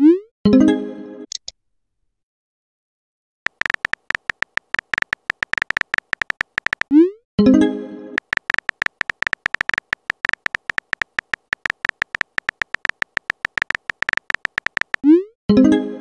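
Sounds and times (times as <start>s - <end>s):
keyboard tap clicks with beeps: 3.5s - 6.9s, 8.2s - 15.1s.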